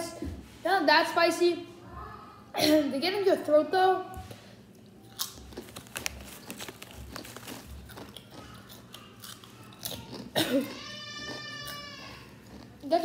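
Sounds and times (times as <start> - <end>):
chewing crisp potato chips: 4.7 - 13.0.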